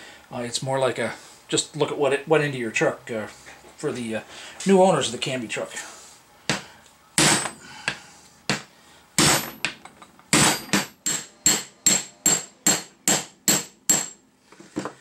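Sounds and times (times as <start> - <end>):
hammer striking steel punch: 7.2 - 7.6, 8.5 - 14.2.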